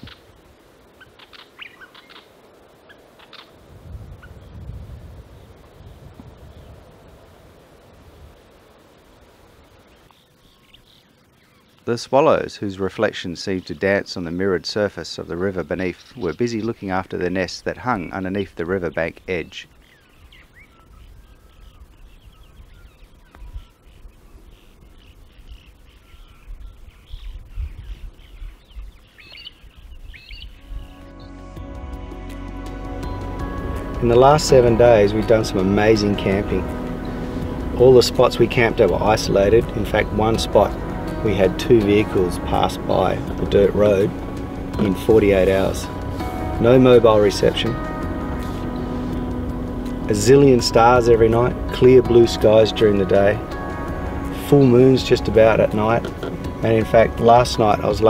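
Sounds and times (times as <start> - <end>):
bird chirping: 0.0 - 3.6, 9.8 - 11.8, 15.2 - 31.6
swallows twittering: 1.0 - 3.6, 9.8 - 11.8, 12.8 - 31.4, 33.0 - 58.0
wind rumble on microphone: 3.4 - 8.6, 20.2 - 31.1
low rumble: 30.6 - 57.8.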